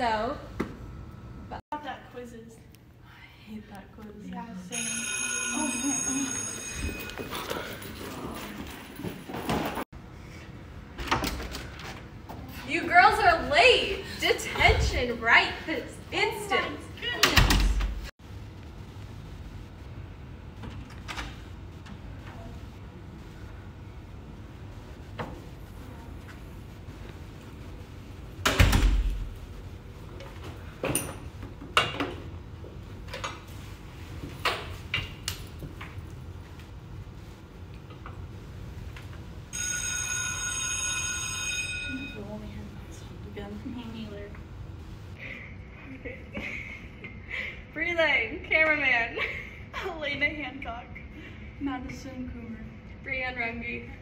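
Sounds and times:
school bell ringing: 4.7 - 7.9, 39.5 - 42.4.

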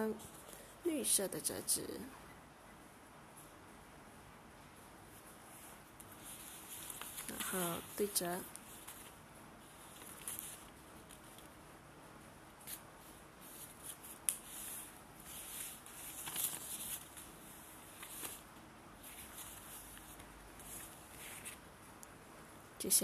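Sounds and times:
paper rustling and crinkling: 6.0 - 11.5, 12.6 - 21.6.

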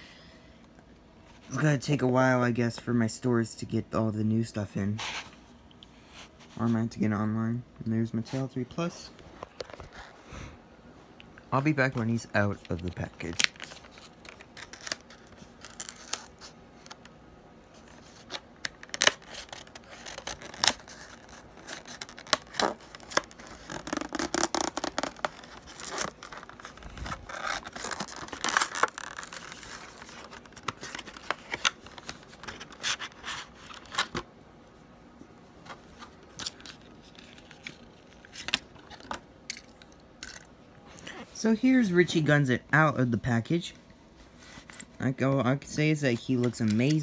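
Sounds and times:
plastic blister pack crinkling: 12.5 - 17.1, 17.8 - 34.2, 36.1 - 41.1.

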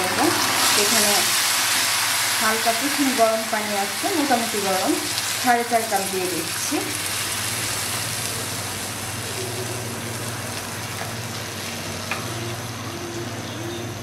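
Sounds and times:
hot oil sizzling in a pan: 0.0 - 12.8.

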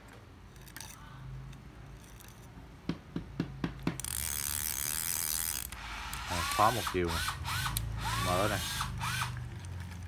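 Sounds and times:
fishing reel clicks: 4.0 - 9.7
fishing reel gears whirring: 4.0 - 10.0.

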